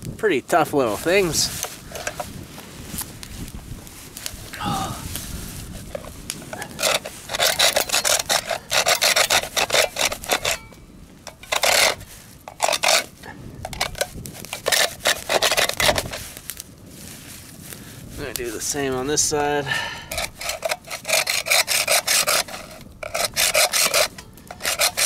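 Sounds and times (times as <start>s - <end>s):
blade sawing hard shell: 5.9s - 16.4s, 20.1s - 25.0s.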